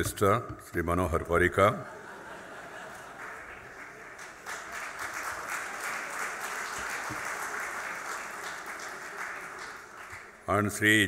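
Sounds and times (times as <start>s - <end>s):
audience applauding: 2.5s - 10.5s.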